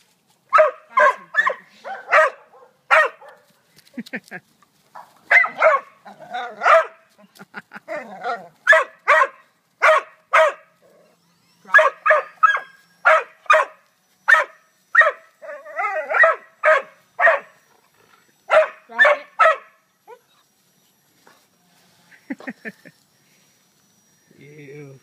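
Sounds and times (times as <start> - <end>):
dog barking: 0.5 - 3.5, 5.0 - 6.0, 6.6 - 7.0, 8.6 - 10.7, 11.7 - 15.2, 15.8 - 17.6, 18.5 - 19.8
dog wavering cry: 7.9 - 17.6.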